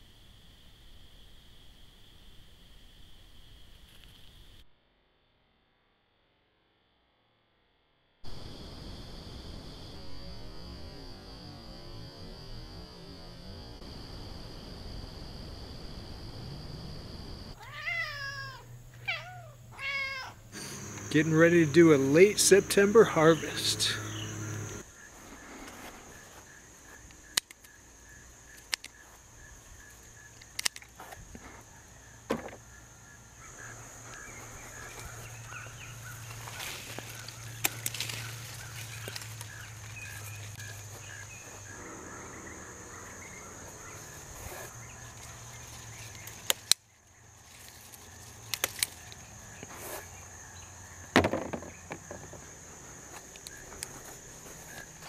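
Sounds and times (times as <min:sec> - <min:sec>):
high insect drone: 0:00.0 - 0:04.6, 0:08.2 - 0:55.0
garden shears snipping: 0:36.4 - 0:39.5, 0:46.0 - 0:46.8, 0:47.6 - 0:49.2.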